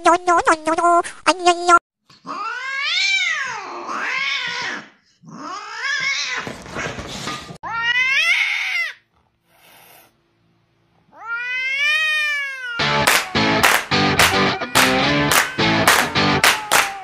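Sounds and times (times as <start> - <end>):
cat yowling: 2.2 - 6.4, 7.6 - 9.0, 11.1 - 13.6, 14.3 - 17.0.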